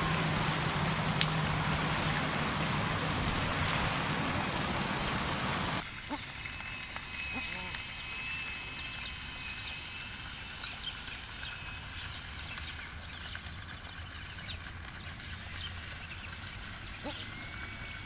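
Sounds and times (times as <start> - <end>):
low wind rumble: 0.0 - 5.8
birds chirping: 0.0 - 6.2, 10.7 - 18.0.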